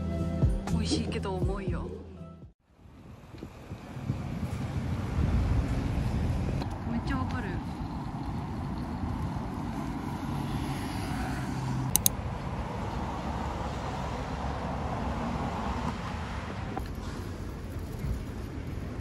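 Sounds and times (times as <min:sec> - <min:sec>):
road traffic rumble: 0:02.6 - 0:19.0
sharp clicks: 0:11.9 - 0:12.2.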